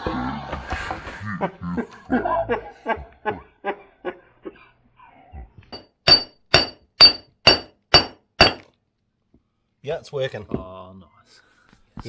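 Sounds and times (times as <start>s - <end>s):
hammer striking steel shaft: 5.8s - 8.7s.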